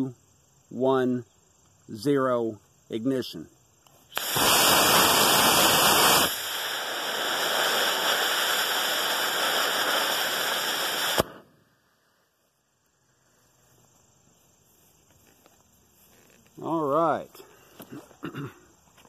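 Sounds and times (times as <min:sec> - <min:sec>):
ejection charge pop: 0:04.1 - 0:06.9, 0:10.9 - 0:11.6
rocket motor hissing: 0:04.1 - 0:12.1.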